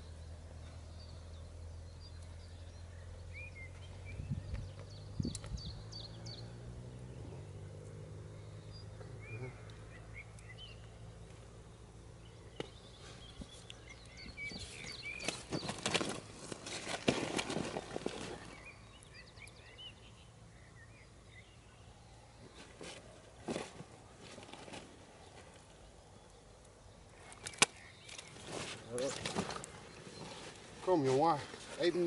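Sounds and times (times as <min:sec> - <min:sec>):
low steady hum: 0:00.0 - 0:30.8
small birds chirping: 0:00.0 - 0:32.0
rustles and knocks of handling: 0:12.6 - 0:18.6, 0:22.4 - 0:25.8.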